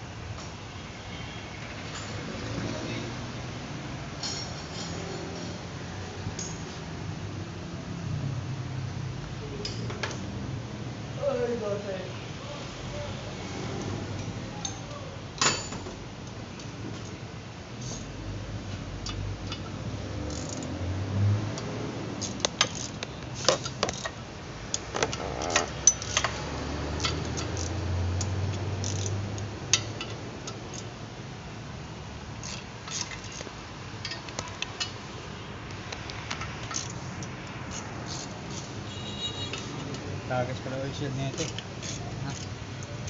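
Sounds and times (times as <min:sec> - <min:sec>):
ratchet wrench clicking: 0:19.0 - 0:20.8, 0:21.5 - 0:26.4, 0:27.0 - 0:30.9, 0:32.4 - 0:35.0, 0:35.9 - 0:38.8, 0:41.3 - 0:43.0.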